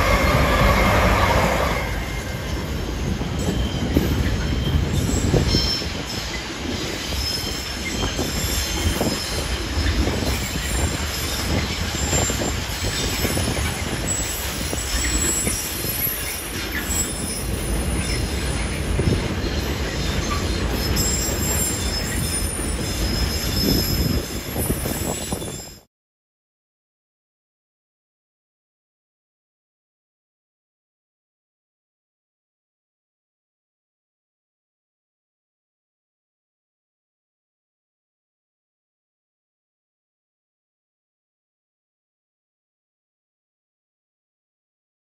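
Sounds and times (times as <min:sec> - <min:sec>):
high wheel squeal: 0:00.0 - 0:25.9
train wheels rumbling on rail: 0:00.0 - 0:25.9.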